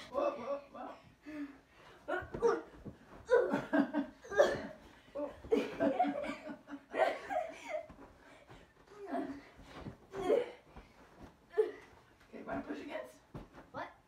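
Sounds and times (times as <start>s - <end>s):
pillows thumping: 1.9s - 6.5s, 7.2s - 14.0s
people laughing and giggling: 3.2s - 9.5s.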